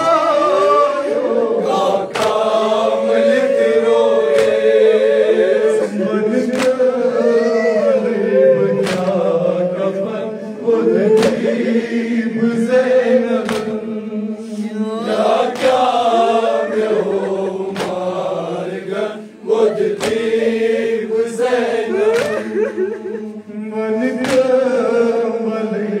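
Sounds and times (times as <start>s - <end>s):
men chanting in unison: 0.0s - 26.0s
hands slapping chests: 2.1s - 2.6s, 4.3s - 4.8s, 6.5s - 6.9s, 8.8s - 9.2s, 11.2s - 11.5s, 13.4s - 13.8s, 15.5s - 16.0s, 17.5s - 18.3s, 19.8s - 20.3s, 22.0s - 22.6s, 24.2s - 24.6s.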